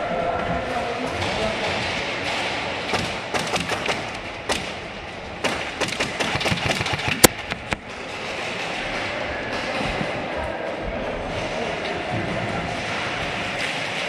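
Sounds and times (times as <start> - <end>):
pellets hitting plywood walls: 1.2 - 10.3
airsoft gunshots: 1.8 - 7.8.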